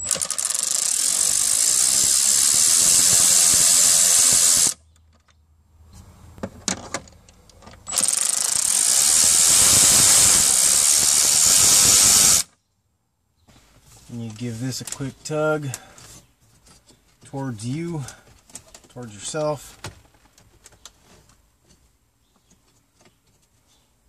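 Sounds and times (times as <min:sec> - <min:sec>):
cordless ratchet running: 0:00.0 - 0:04.8, 0:07.9 - 0:12.5.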